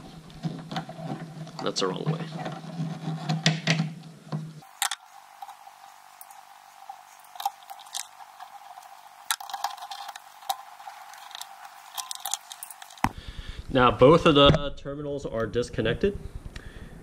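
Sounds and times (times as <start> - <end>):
small metallic clicks and scrapes: 4.6 - 13.1.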